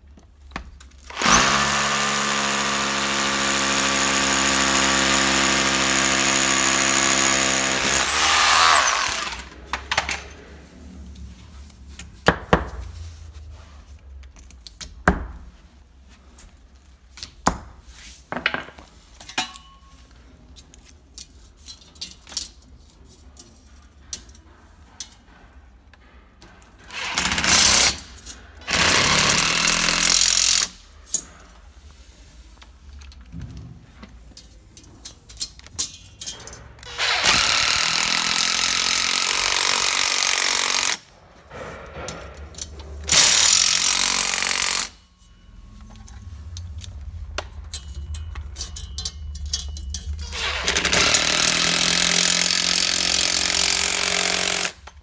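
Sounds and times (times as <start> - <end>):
power drill boring into block: 1.1 - 9.5, 36.9 - 41.0, 50.4 - 54.7
impact driver driving screw: 1.1 - 9.6, 36.9 - 41.0, 50.4 - 54.8.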